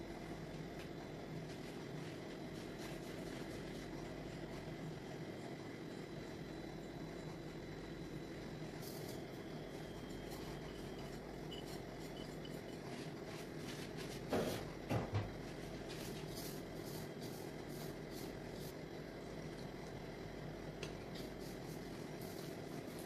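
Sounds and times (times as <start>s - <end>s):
hands rubbing flour mixture: 1.4s - 4.7s, 10.5s - 14.3s.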